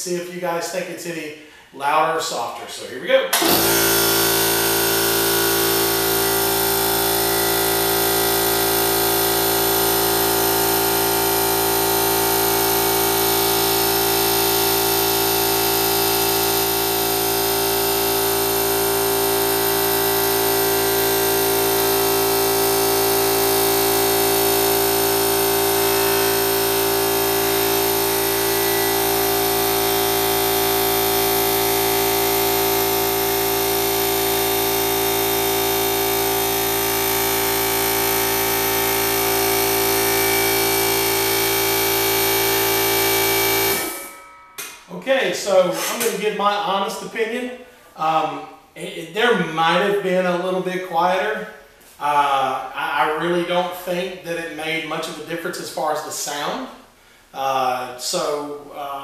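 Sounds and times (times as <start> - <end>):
air compressor running: 3.3 - 44.8.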